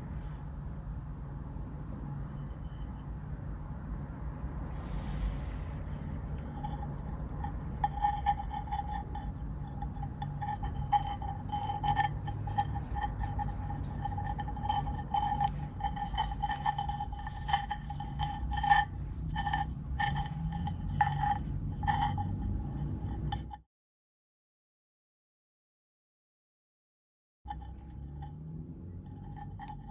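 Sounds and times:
low hum: 0.0 - 23.6.

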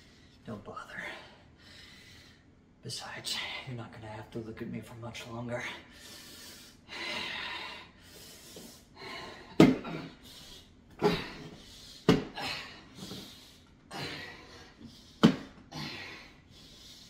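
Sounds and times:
man breathing heavily: 0.0 - 2.6, 5.5 - 17.0
man grunting: 11.0 - 12.9, 13.9 - 14.7, 15.3 - 16.4.

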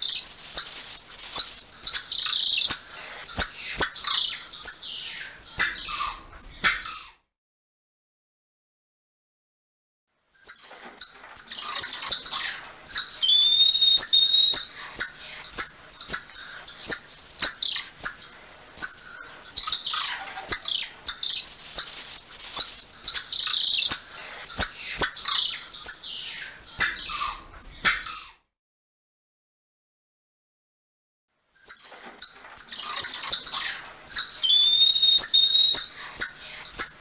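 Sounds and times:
monkey chirps and whistles: 0.0 - 2.1, 12.9 - 14.7, 18.8 - 24.0, 34.1 - 37.0.

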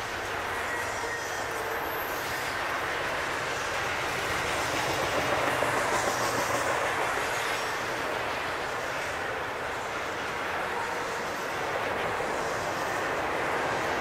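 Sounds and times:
freight train wheels rumbling: 0.0 - 14.0.

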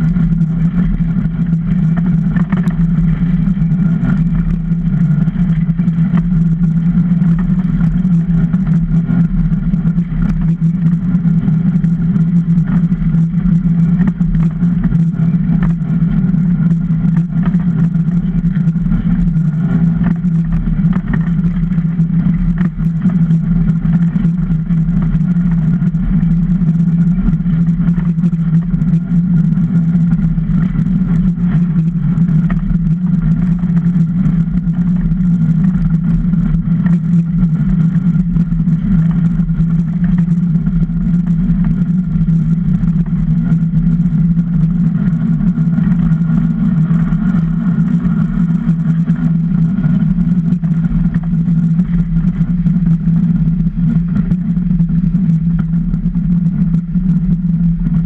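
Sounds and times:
iceboat runners rumbling on ice: 0.0 - 58.0
small clicks and ticks: 0.1 - 58.0.

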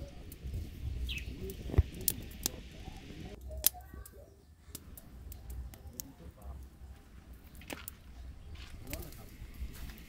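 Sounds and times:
wood fire crackling and popping: 0.0 - 10.0
birds calling: 0.9 - 3.2.

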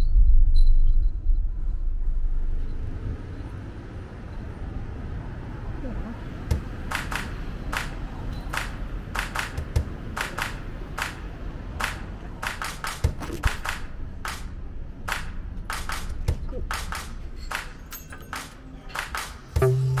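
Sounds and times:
low steady rumble: 0.0 - 6.8.

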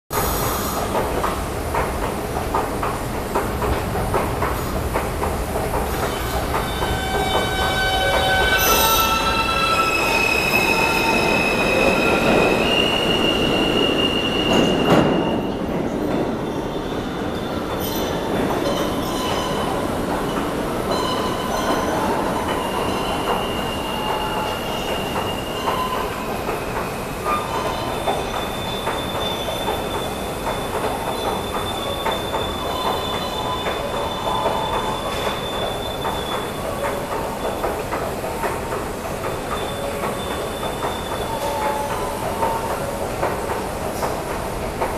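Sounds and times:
train rumble: 0.1 - 44.9
high wheel squeal: 6.0 - 15.8, 16.4 - 37.6, 39.4 - 42.8.

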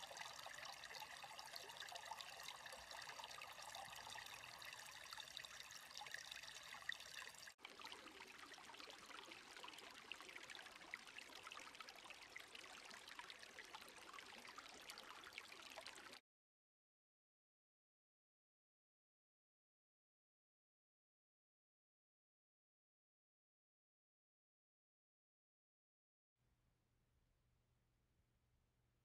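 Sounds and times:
faint stream trickling over stones: 0.0 - 16.2.

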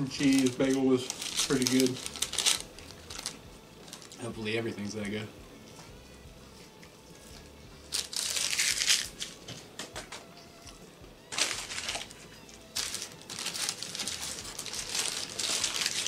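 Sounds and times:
paper wrappers crinkling: 0.0 - 4.3, 7.8 - 9.6, 11.2 - 16.0.

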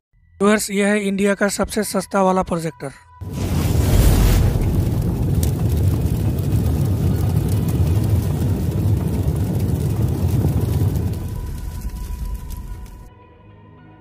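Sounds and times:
loud low rumble: 3.2 - 13.1.

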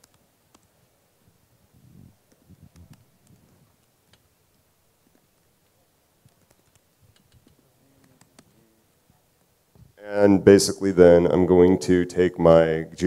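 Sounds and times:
laptop keys typing: 0.0 - 0.8, 6.2 - 8.6.

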